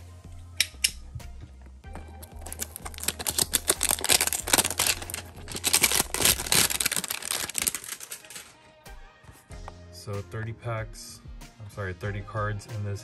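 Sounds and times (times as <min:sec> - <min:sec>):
plastic wrap crinkling: 0:02.0 - 0:08.6.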